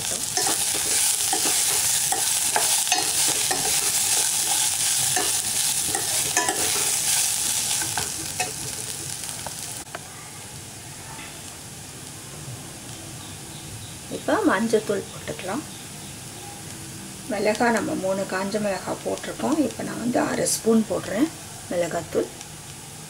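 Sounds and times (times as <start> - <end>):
oil sizzling: 0.0 - 23.0
metal spoon scraping a pot: 0.3 - 8.9.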